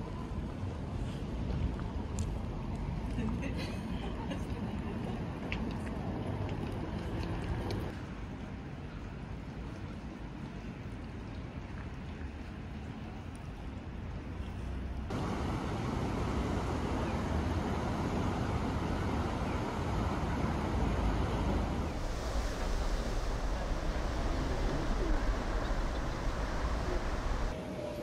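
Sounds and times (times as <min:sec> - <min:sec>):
river water flowing: 0:05.2 - 0:27.6
open-air hiss: 0:15.0 - 0:28.0
wind buffeting microphone: 0:15.1 - 0:27.6.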